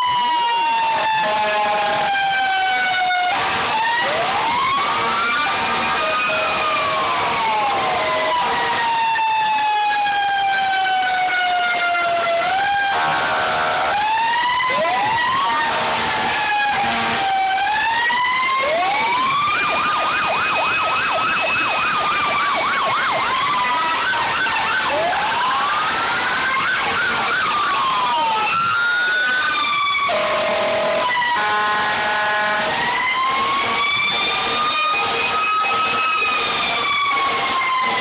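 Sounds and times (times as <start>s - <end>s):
fire engine sirens wailing: 0.0s - 38.0s
horn blasting: 30.2s - 32.9s.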